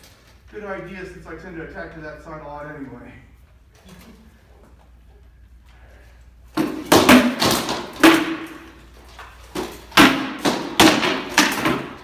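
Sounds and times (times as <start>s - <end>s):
swords striking shields: 6.6s - 8.8s, 9.5s - 12.0s.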